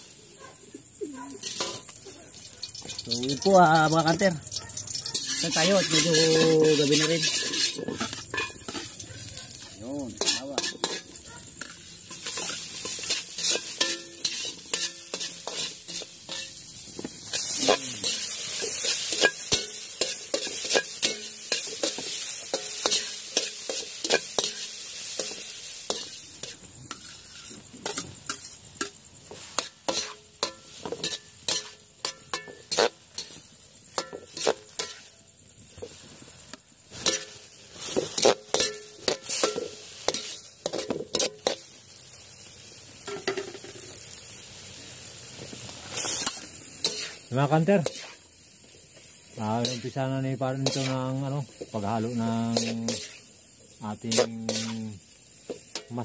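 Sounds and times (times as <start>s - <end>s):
food sizzling in a wok: 0.0s - 56.0s
metal spatula scraping pan: 1.3s - 35.1s, 36.9s - 41.7s, 45.9s - 48.2s, 52.1s - 53.3s, 54.1s - 54.8s.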